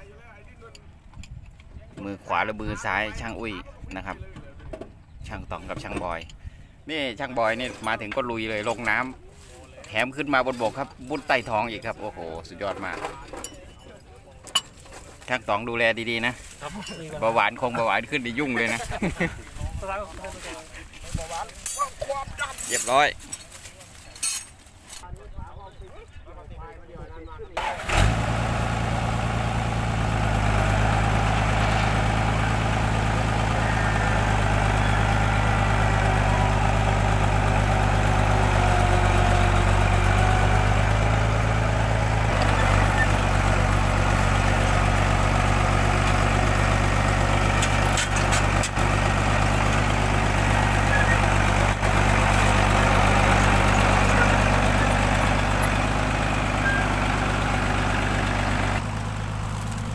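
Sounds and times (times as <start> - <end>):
tracked vehicle engine running: 27.6 - 59.9.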